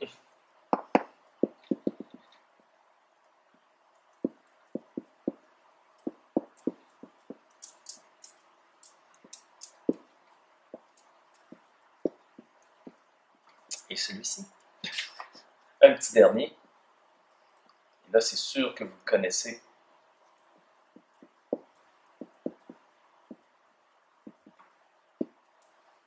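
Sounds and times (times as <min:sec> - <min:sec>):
marker tip tapping whiteboard: 0:00.7 - 0:02.2, 0:06.0 - 0:10.1, 0:20.9 - 0:23.4, 0:24.3 - 0:24.6
marker squeaking on whiteboard: 0:00.7 - 0:02.4, 0:06.0 - 0:13.0.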